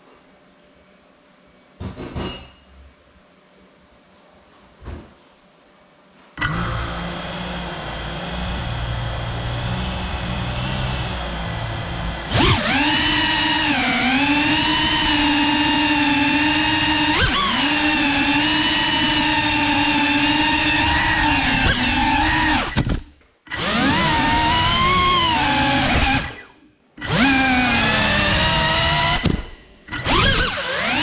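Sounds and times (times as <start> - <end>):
drone motors whining: 6.4 - 31.0.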